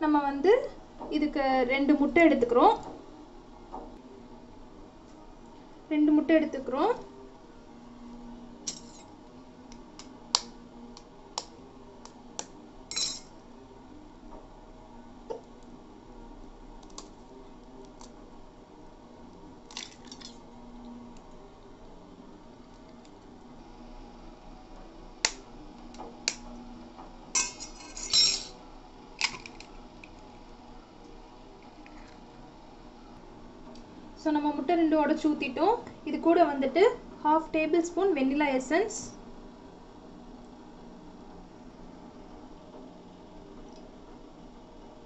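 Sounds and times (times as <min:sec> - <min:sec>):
egg clinking on steel bowl: 0:12.9 - 0:13.3.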